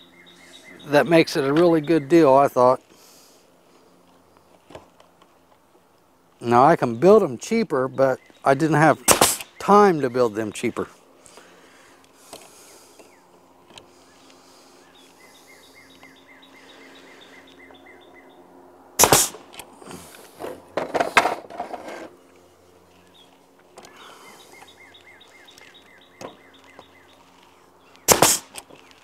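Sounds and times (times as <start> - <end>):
bird chirping: 0.0 - 2.7, 6.5 - 10.8, 12.5 - 18.6, 22.8 - 28.2
nail gun firing: 9.1 - 9.5, 19.0 - 19.5, 28.1 - 28.6.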